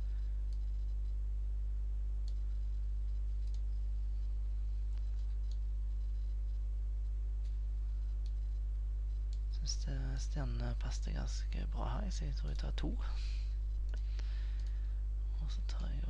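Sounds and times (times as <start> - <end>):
low electrical hum: 0.0 - 16.0
computer mouse clicks: 0.5 - 1.2, 2.2 - 3.7, 4.9 - 6.6, 7.4 - 9.5.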